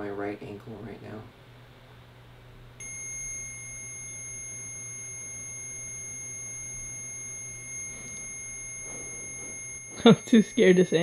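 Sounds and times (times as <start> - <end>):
high-pitched electronic alarm tone: 2.8 - 11.0.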